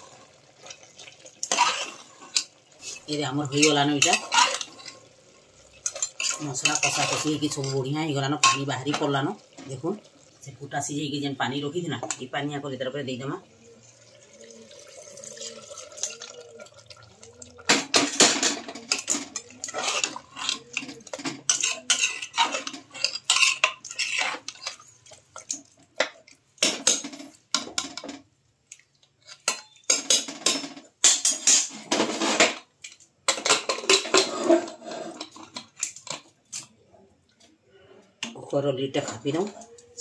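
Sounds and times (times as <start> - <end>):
ladle scraping a metal pot: 1.4 - 9.2, 15.4 - 25.6, 33.4 - 36.1.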